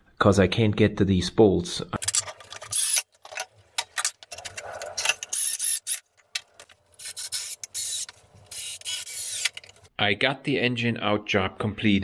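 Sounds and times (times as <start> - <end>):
tools and metal parts clinking: 2.0 - 9.9.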